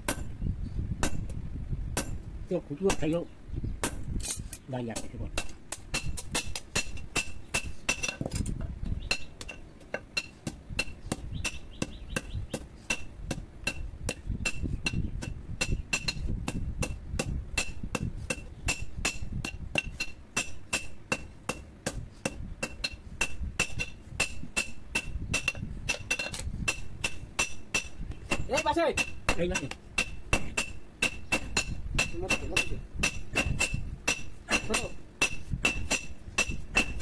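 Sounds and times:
hammer striking steel on anvil: 0.0 - 0.3, 5.0 - 8.4, 12.9 - 37.0.

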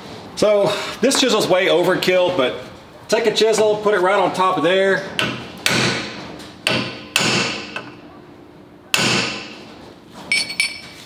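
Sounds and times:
hammer striking chisel on metal: 5.2 - 8.0, 8.9 - 9.6.

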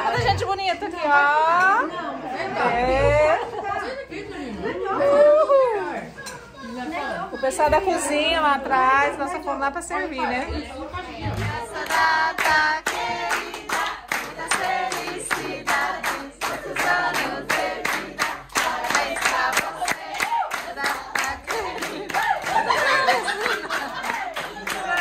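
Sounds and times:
group singing unaccompanied: 10.3 - 25.0
people clapping rhythmically: 11.3 - 25.0.

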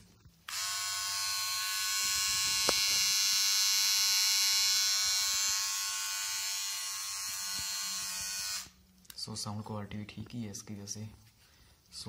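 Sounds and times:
beard trimmer buzzing: 0.4 - 8.8.

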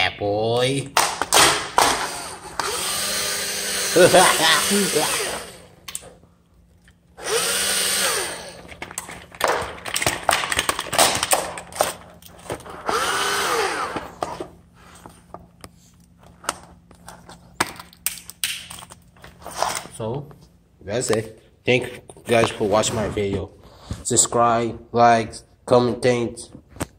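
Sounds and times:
cordless drill whirring: 1.8 - 5.8, 7.2 - 8.8, 12.7 - 14.3
drill grinding plastic: 1.8 - 5.8, 7.2 - 9.0, 12.5 - 14.4.

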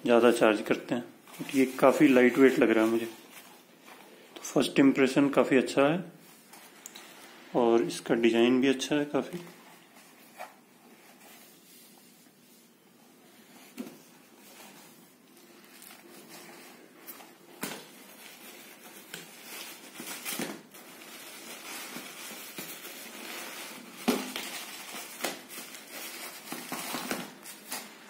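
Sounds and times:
tissue paper crinkling: 1.2 - 4.2, 9.4 - 28.0.

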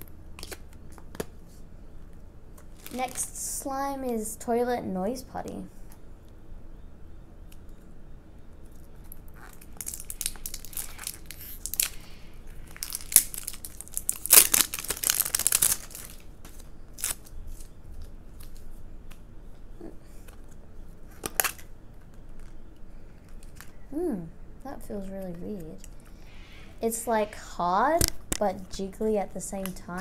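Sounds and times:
plastic wrap tearing and crinkling: 0.4 - 1.3, 2.7 - 3.2, 9.0 - 18.7, 21.1 - 22.6.

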